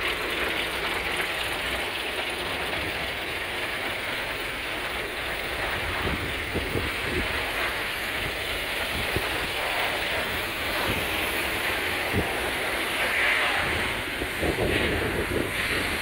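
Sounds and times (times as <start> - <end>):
wind buffeting microphone: 5.0 - 12.8, 13.6 - 16.0.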